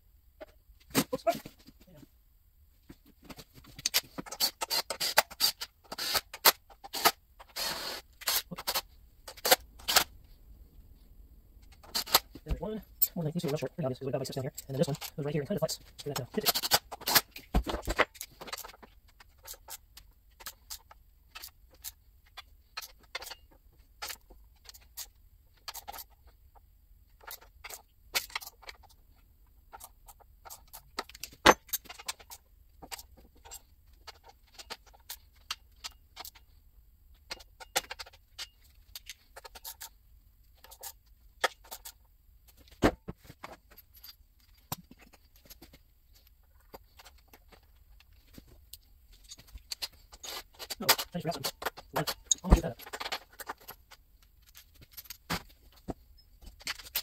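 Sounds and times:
small metal parts clinking: 0:14.3 - 0:26.3, 0:37.1 - 0:42.8, 0:43.4 - 0:57.0.

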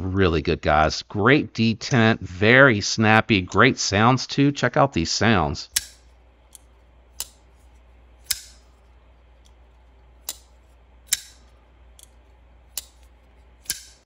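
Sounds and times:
flipper knife clicking open and shut: 0:05.8 - 0:07.5, 0:08.2 - 0:08.8, 0:10.2 - 0:14.0.

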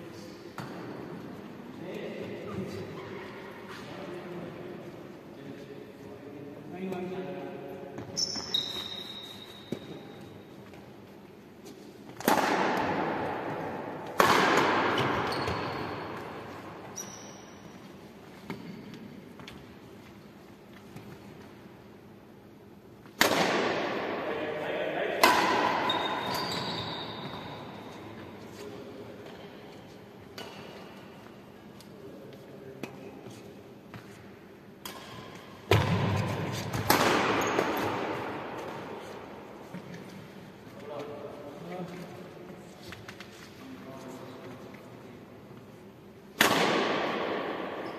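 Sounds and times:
racket hitting shuttlecock: 0:12.1 - 0:16.6, 0:23.0 - 0:24.2, 0:25.2 - 0:27.8, 0:34.8 - 0:39.1, 0:46.3 - 0:47.9.

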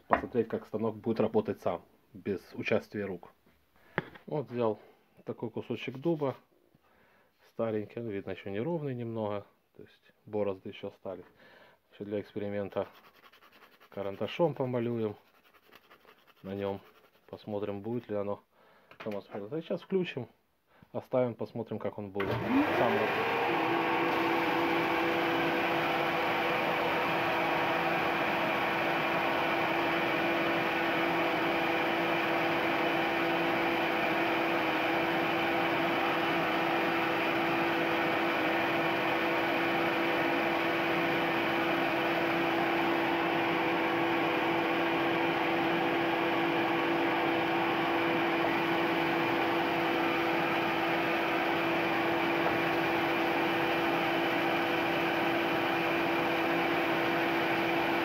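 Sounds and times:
belt sander motor hum: 0:22.2 - 0:58.0.

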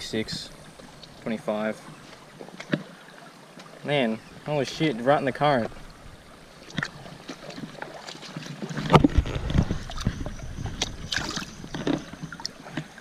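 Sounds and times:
water splashing and sloshing: 0:00.0 - 0:13.0
low rumble on microphone: 0:08.8 - 0:12.6.

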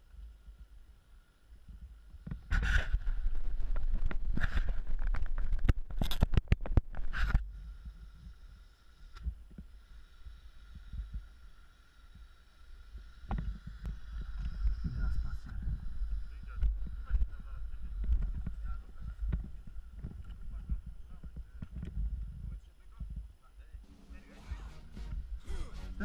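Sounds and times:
microphone buffeting and handling: 0:01.6 - 0:08.4, 0:13.2 - 0:23.3
faint steady tone: 0:07.4 - 0:25.4.

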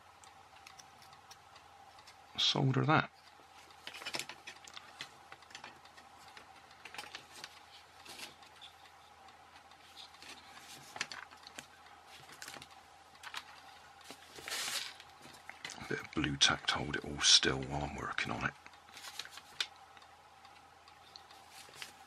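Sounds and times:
rustle: 0:12.2 - 0:15.1.

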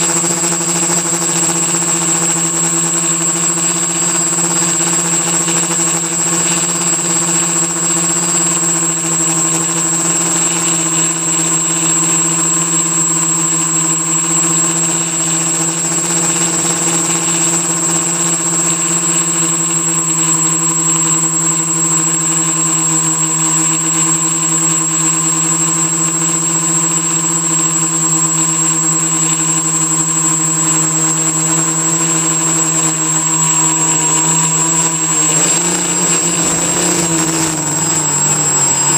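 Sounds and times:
thin high propeller whine: 0:00.0 - 0:38.9
drone motors buzzing: 0:29.3 - 0:38.9.

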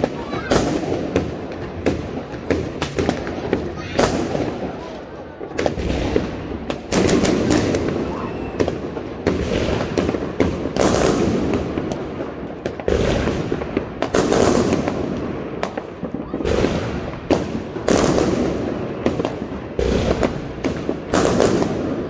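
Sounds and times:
fireworks bangs: 0:00.0 - 0:22.0
fireworks crackling: 0:00.0 - 0:22.0.

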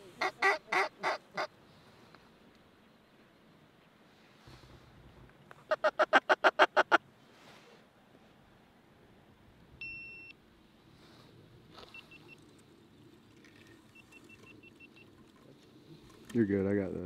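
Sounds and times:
duck call quacks: 0:00.2 - 0:01.5, 0:05.7 - 0:07.0
short high beep: 0:09.8 - 0:10.4.

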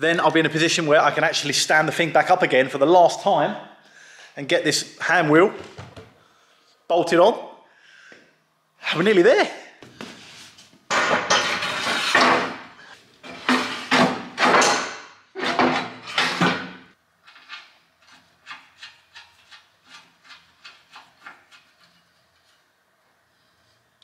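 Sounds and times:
metal scraping on metal: 0:11.2 - 0:14.2.

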